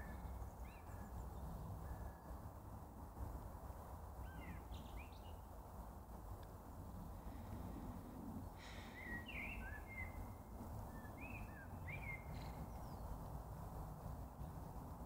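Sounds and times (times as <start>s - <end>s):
low outdoor rumble: 0.0s - 15.0s
bird chirps: 8.8s - 13.2s.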